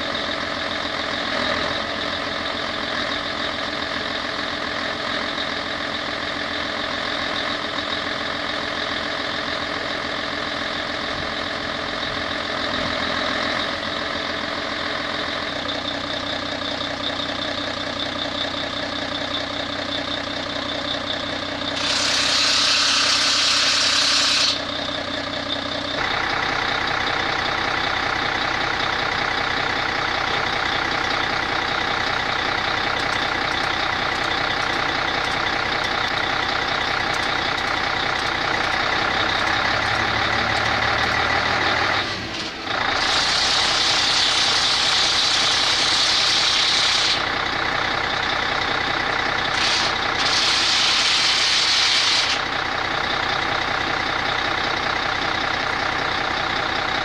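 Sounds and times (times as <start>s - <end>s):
heavy machinery humming: 0.0s - 57.0s
air release hiss: 21.8s - 24.6s, 49.6s - 52.4s.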